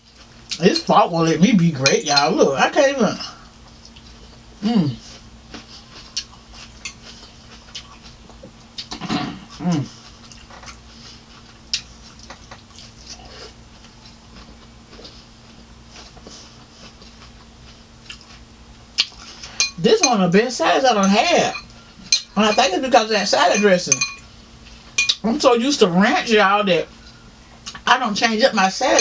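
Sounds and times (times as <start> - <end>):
chewing: 3.6 - 4.4, 5.0 - 19.8
fork clicking on glass bowl: 19.6 - 19.8, 23.6 - 24.2, 25.0 - 25.2.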